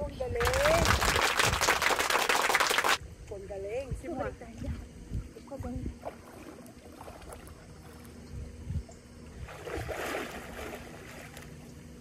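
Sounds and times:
pool water splashing: 0.4 - 3.0, 6.0 - 8.2, 9.4 - 11.7.

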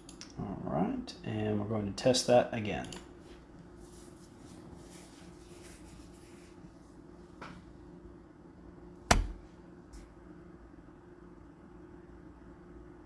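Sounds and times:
sharp knock: 9.1 - 9.4.

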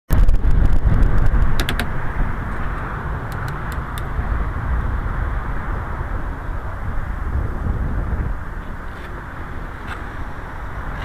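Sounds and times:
wind and road noise: 0.1 - 11.0
sharp clicks: 1.0 - 2.0, 3.3 - 4.1.

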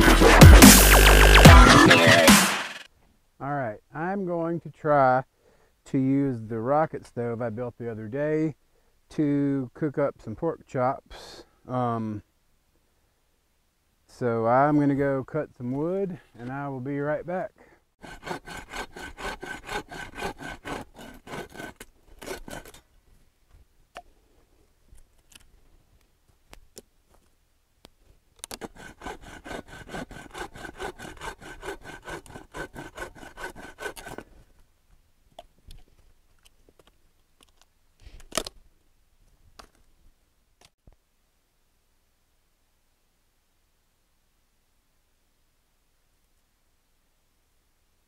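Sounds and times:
hand saw cutting a stick: 0.0 - 2.7, 18.0 - 22.9, 28.4 - 34.4.

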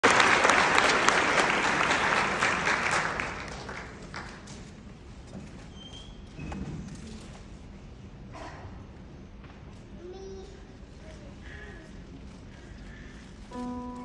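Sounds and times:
audience applauding: 0.0 - 4.5.

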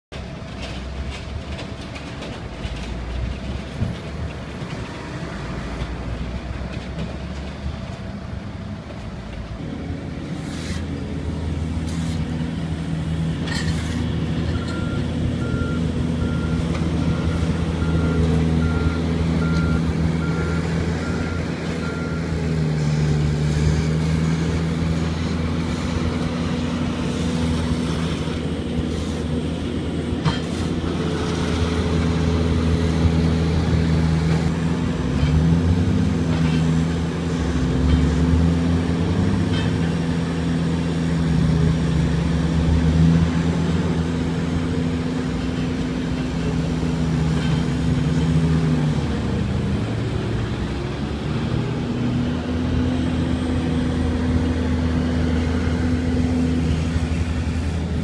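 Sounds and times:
distant idling trucks and traffic: 0.1 - 58.0
heavy diesel engine running: 0.1 - 58.0
shovels scraping on road: 10.3 - 11.0, 11.8 - 12.4, 13.4 - 14.7, 27.0 - 29.4, 30.3 - 31.6
reversing alarm beeping: 14.4 - 22.4.

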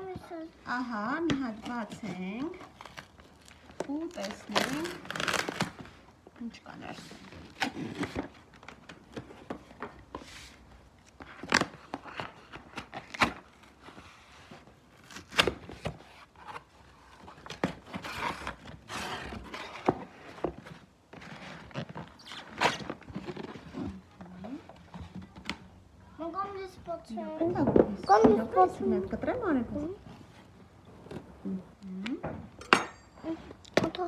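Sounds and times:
packaging rustling: 1.5 - 6.3
box and contents knocking: 27.4 - 28.5.

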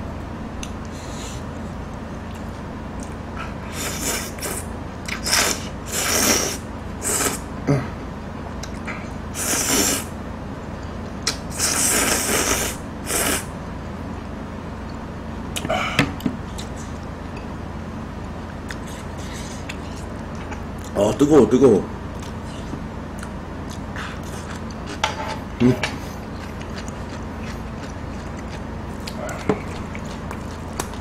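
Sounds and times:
loud noodle slurps: 3.7 - 7.4, 9.4 - 10.1, 11.5 - 13.5.

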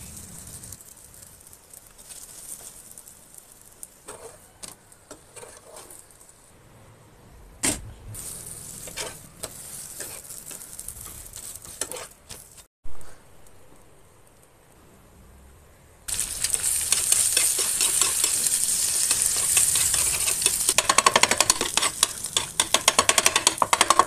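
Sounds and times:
bread sizzling on a hot pan: 0.0 - 6.6, 8.2 - 12.7, 16.1 - 24.0
pan and utensil knocks: 20.5 - 24.0.

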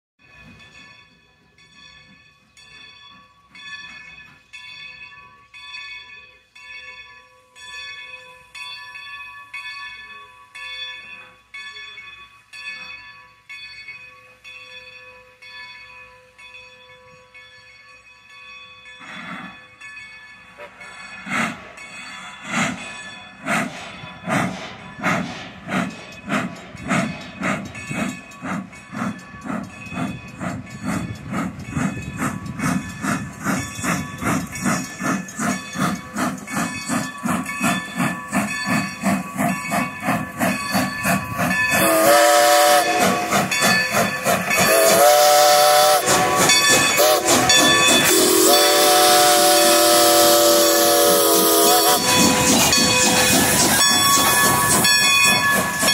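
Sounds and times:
locomotive bell ringing: 0.2 - 55.9
steam locomotive exhaust chuffs: 18.8 - 55.9
steam hissing: 20.5 - 55.9.

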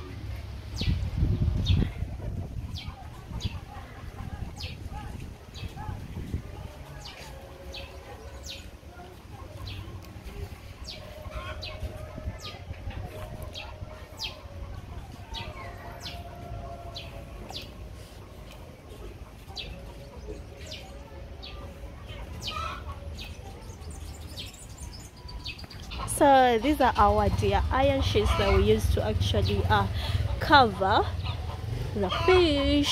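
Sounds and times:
steady low rumble: 0.0 - 32.9
small birds chirping: 6.9 - 32.9.

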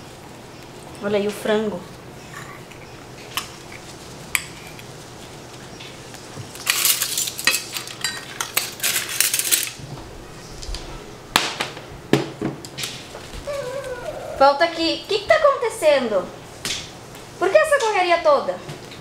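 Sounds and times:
cutlery and dishes clinking: 6.6 - 9.8.

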